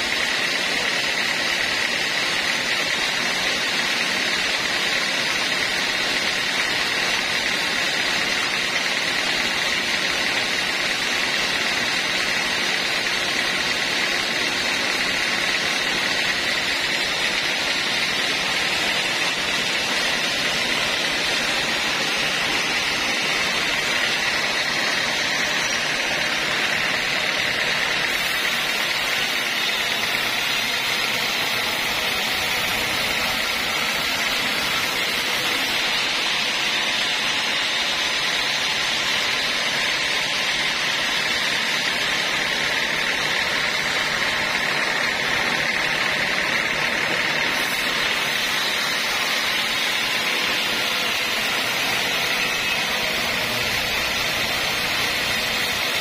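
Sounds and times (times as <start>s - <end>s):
band sawmill cutting log: 0.0s - 56.0s
high blade whine: 0.0s - 56.0s.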